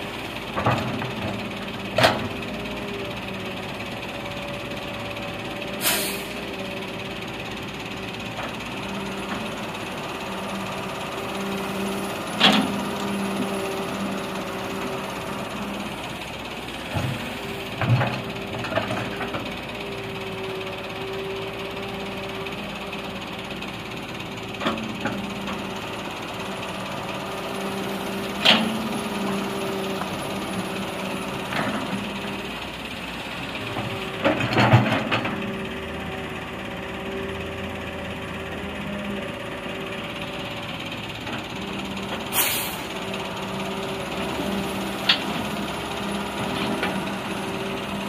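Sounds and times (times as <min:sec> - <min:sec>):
excavator engine and hydraulics drone: 0:00.0 - 0:48.0
short hiss: 0:05.8 - 0:06.3, 0:42.3 - 0:42.9.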